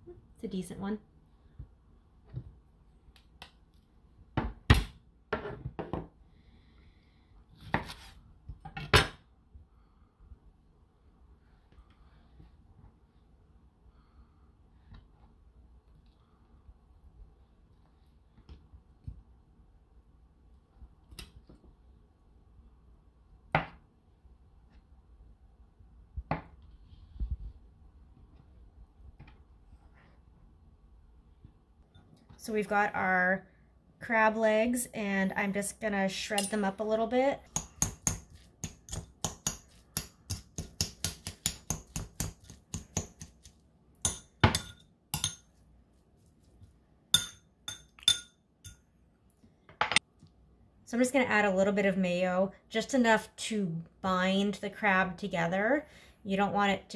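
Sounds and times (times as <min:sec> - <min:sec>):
forks clinking against ceramic bowl: 0:44.1 - 0:45.5.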